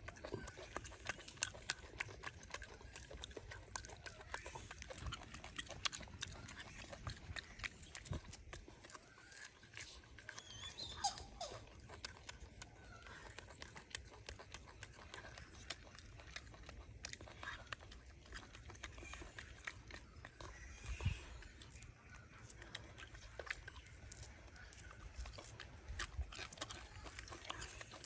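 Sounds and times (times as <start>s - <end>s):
small animal squeaking: 2.5s - 16.5s, 18.4s - 25.6s.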